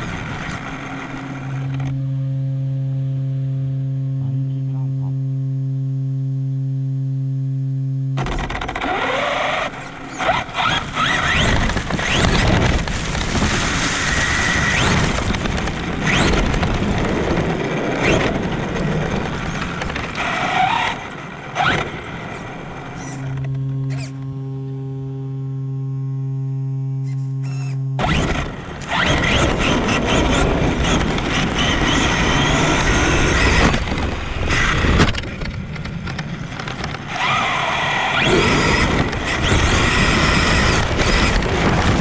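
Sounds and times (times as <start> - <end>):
electric motor whine: 0.0 - 4.6, 5.4 - 42.0
steady hum: 0.0 - 42.0
tyre and ground noise: 8.2 - 24.8, 27.0 - 42.0.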